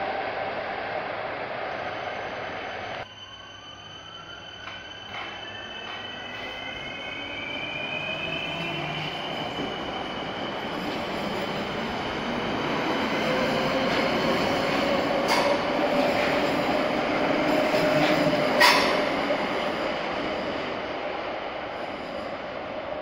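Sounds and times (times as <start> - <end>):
electric train whine: 0.0 - 23.0
wheel and rail noise: 8.4 - 20.4.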